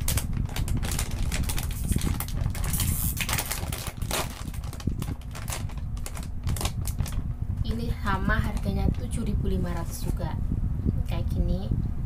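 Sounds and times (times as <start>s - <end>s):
bag top ripping apart: 0.0s - 7.2s
plastic snack bag crackling: 0.0s - 7.2s.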